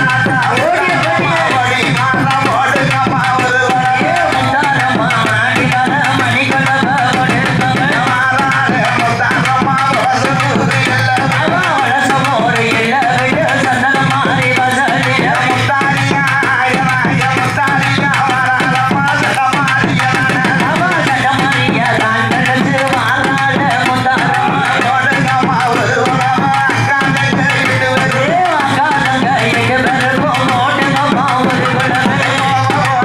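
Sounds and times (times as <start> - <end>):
fast steady drum beat: 0.0 - 33.0
woman singing through loudspeaker: 0.0 - 33.0.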